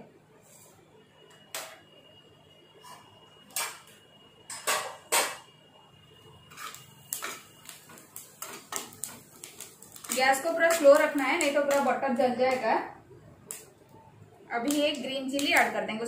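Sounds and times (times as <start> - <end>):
spatula scraping metal pan: 6.5 - 7.5.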